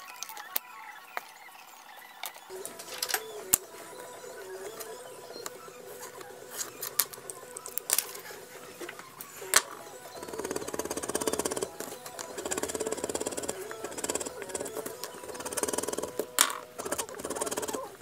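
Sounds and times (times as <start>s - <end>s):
soft background music: 0.0s - 18.0s
fast even scratching: 2.5s - 18.0s.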